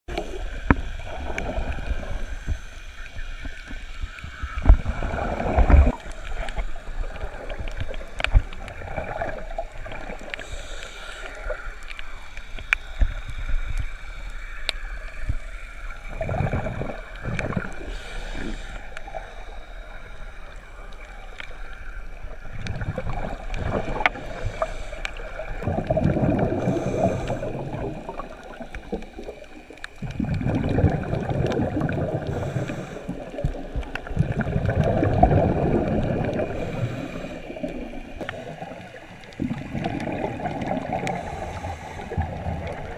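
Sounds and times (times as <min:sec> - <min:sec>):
underwater bubbles gurgling: 0:00.1 - 0:42.9
sharp underwater clicks: 0:05.5 - 0:15.5.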